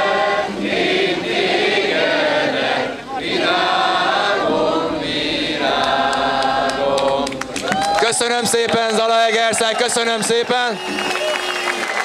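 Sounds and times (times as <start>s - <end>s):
crowd singing together: 0.0s - 7.8s.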